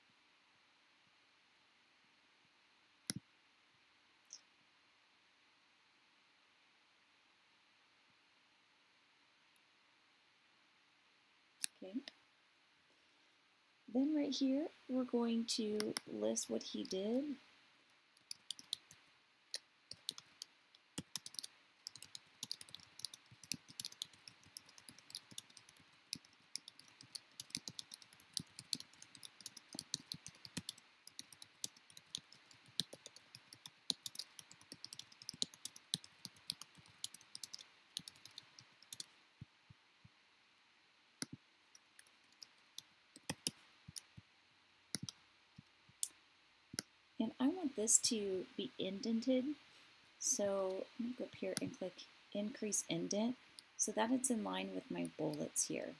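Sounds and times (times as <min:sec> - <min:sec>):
computer keyboard typing: 0:18.2 - 0:19.0, 0:19.9 - 0:39.1, 0:41.8 - 0:44.1, 0:45.0 - 0:45.2.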